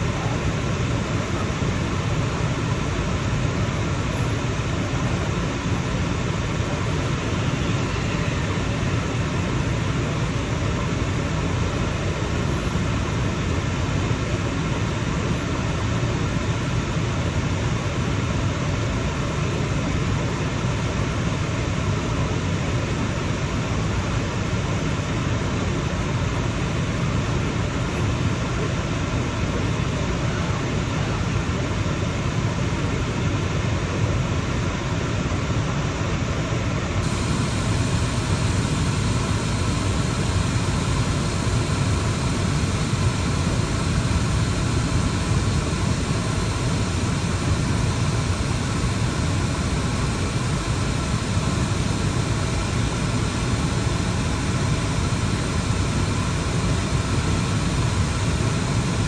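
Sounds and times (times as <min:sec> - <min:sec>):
car cabin road noise: 0:37.0 - 0:48.9.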